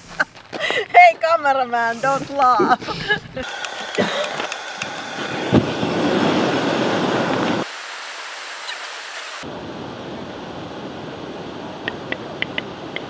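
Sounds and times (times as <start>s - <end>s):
loud rushing noise: 4.6s - 7.8s.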